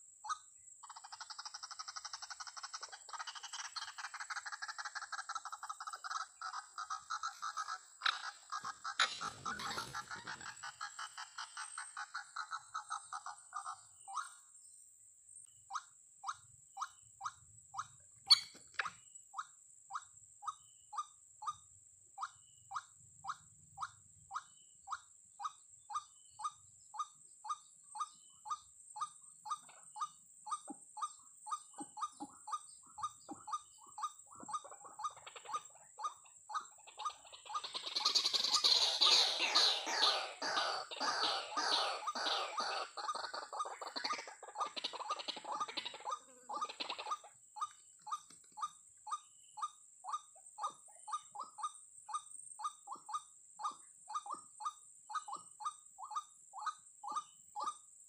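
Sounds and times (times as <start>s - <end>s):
waterhen calls: 0.9s - 14.4s, 18.3s - 18.9s, 31.6s - 47.3s.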